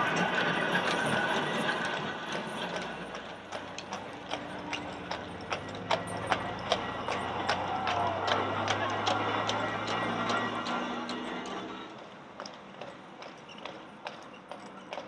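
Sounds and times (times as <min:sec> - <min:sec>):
horse hooves clip-clopping on road: 0:00.0 - 0:15.0
tram wheels rattling on rails: 0:00.0 - 0:15.0.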